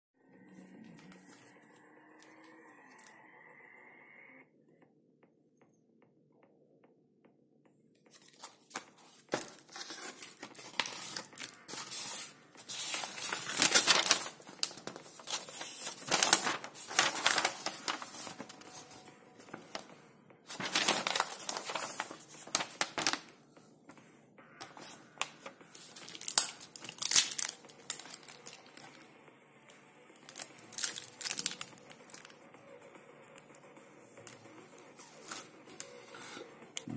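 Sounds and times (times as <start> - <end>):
paper packaging crinkling and rustling: 8.1 - 19.9, 20.5 - 23.3, 24.6 - 29.1, 30.2 - 32.4, 34.2 - 36.4.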